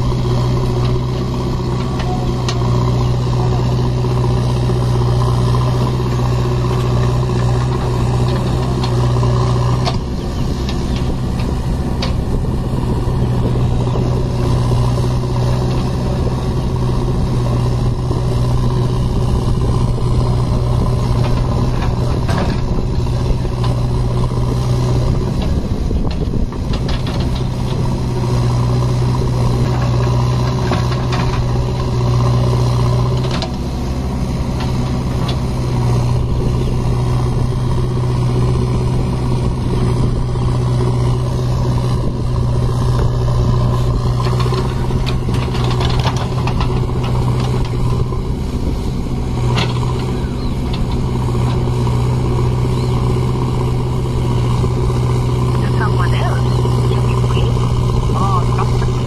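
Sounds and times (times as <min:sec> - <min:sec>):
heavy diesel engines running: 0:00.0 - 0:59.0.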